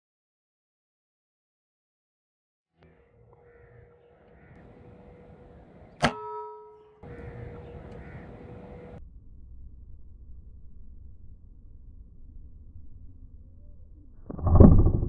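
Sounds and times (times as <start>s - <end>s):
faint bird calls: 2.8s - 6.1s, 6.8s - 9.0s.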